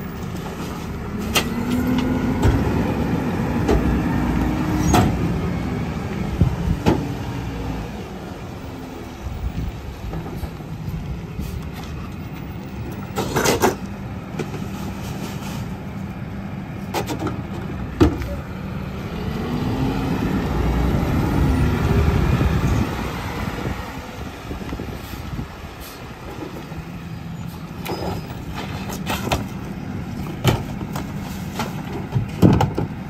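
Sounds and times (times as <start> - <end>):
garbage truck engine: 0.0 - 33.0
trash can clanking against hopper: 30.3 - 33.0.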